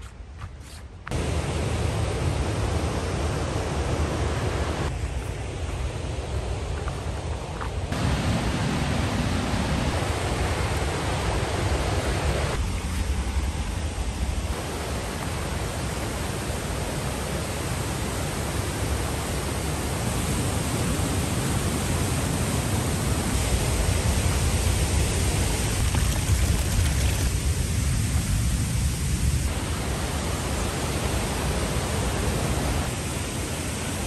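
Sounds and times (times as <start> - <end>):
waterfall rushing over rocks: 7.9 - 12.6, 14.5 - 28.8, 29.5 - 34.0.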